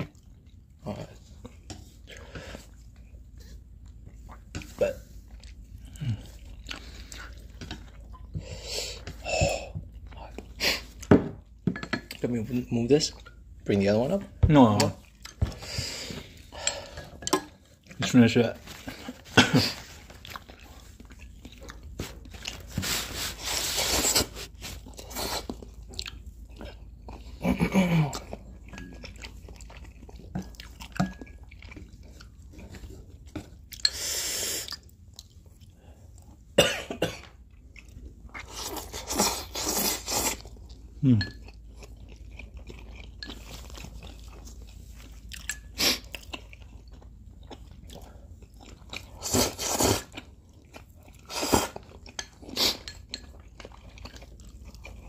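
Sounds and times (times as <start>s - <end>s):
chewing and crunching: 0.0s - 36.6s, 37.2s - 55.0s
noodles slurped: 47.6s - 55.0s.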